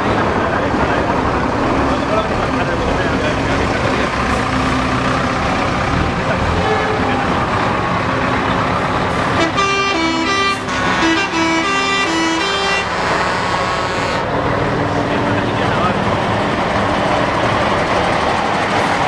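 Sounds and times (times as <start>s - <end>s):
diesel lorries driving past: 0.0s - 19.0s
vehicle horn short notes: 9.4s - 14.2s.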